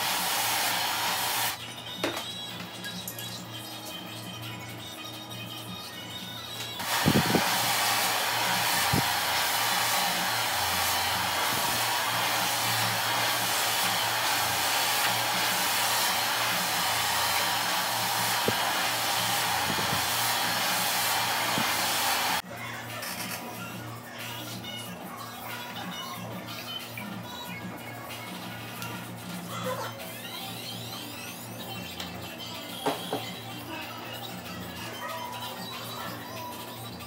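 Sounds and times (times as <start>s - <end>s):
blow dryer running: 0.0s - 1.6s, 6.8s - 22.4s.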